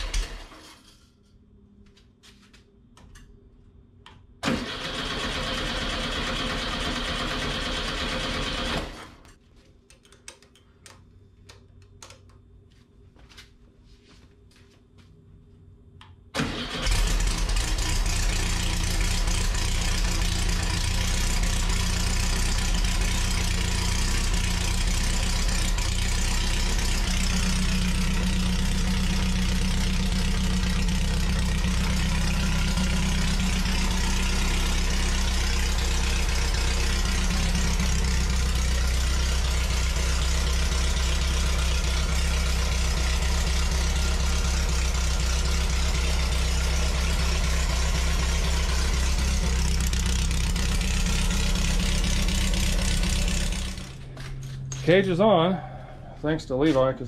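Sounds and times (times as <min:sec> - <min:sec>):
car engine starting and running: 0:00.0 - 0:00.7, 0:04.4 - 0:09.2, 0:16.2 - 0:56.2.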